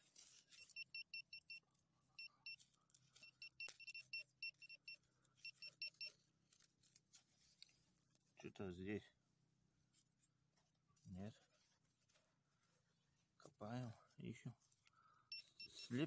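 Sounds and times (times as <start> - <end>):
pinpointer short high beeps: 0.6 - 1.6, 3.2 - 6.1, 15.3 - 16.0.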